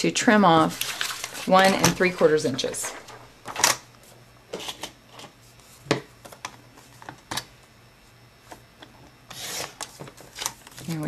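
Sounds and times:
paper rustling: 0.6 - 3.7.

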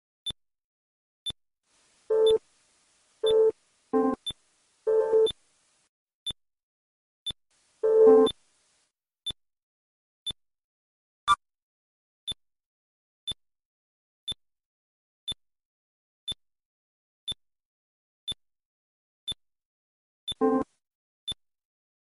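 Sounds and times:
electronic blips ticking: 7.9 - 8.4.

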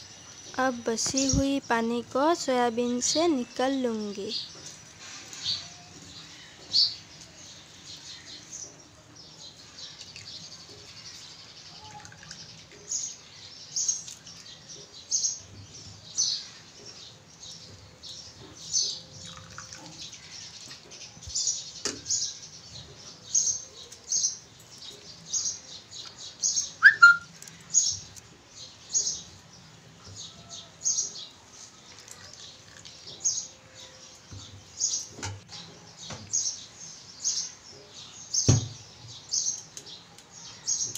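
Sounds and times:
small birds chirping: 0.0 - 40.9
rising-and-falling bird call: 26.8 - 27.3.

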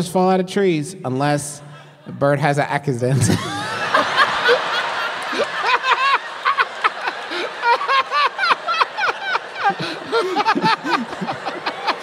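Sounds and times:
men laughing: 3.1 - 12.0.

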